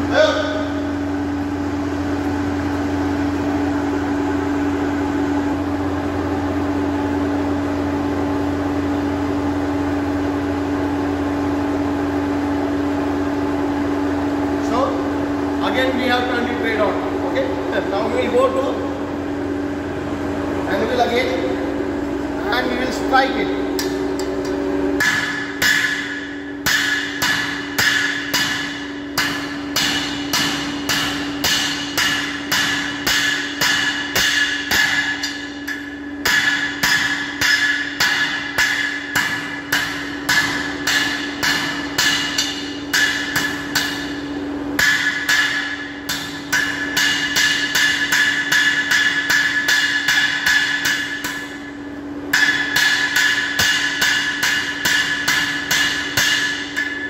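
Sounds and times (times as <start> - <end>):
steady hum: 0.0 - 57.0
hammer blows on anvil: 23.2 - 57.0.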